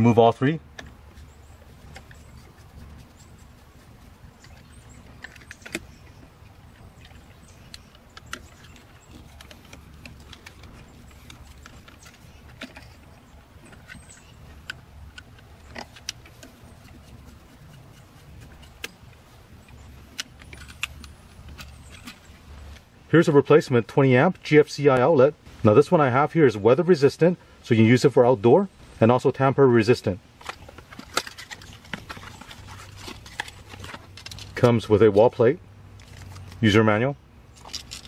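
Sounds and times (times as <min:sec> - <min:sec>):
screwdriver clicking and scraping: 0:13.7 - 0:22.2.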